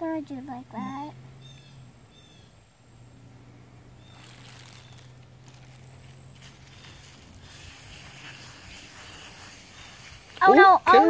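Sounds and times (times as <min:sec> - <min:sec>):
soft hiss: 0:00.0 - 0:11.0
steady low hum: 0:00.0 - 0:11.0
faint bird chirps: 0:00.3 - 0:02.8, 0:03.8 - 0:07.9.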